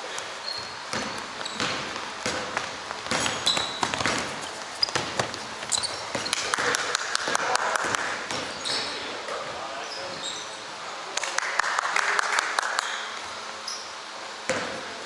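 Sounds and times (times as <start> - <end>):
sneakers squeaking on wood: 0.4 - 6.5, 8.2 - 10.7
basketball bouncing: 0.6 - 8.9, 14.5 - 15.0.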